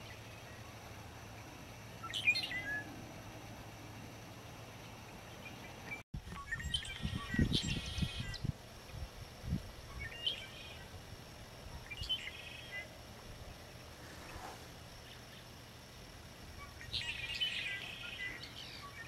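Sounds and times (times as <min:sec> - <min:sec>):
birds chirping and trilling: 0:00.0 - 0:03.2, 0:04.2 - 0:09.2, 0:09.8 - 0:10.9, 0:11.7 - 0:13.0, 0:16.5 - 0:19.0
faint outdoor background: 0:00.0 - 0:19.0.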